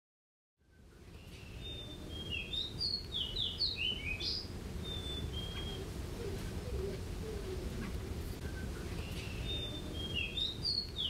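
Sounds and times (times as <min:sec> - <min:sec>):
sparrow singing whistled notes: 0:00.6 - 0:05.9, 0:08.4 - 0:11.0.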